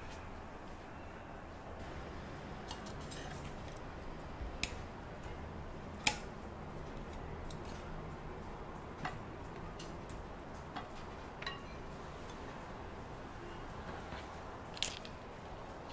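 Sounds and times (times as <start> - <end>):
tableware clicking: 10.8 - 11.9.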